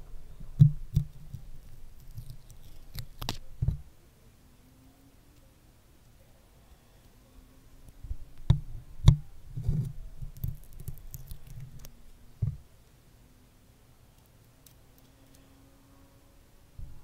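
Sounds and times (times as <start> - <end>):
sticky crackling: 0.6 - 3.8, 8.4 - 12.0.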